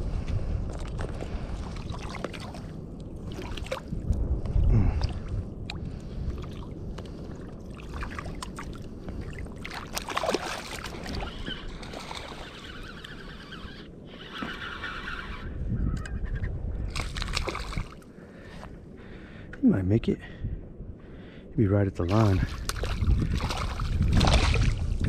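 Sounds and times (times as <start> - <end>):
continuous low rumble: 0.0 - 25.0
water sloshing and splashing: 0.6 - 4.1, 4.9 - 13.7, 16.9 - 18.1, 22.1 - 25.0.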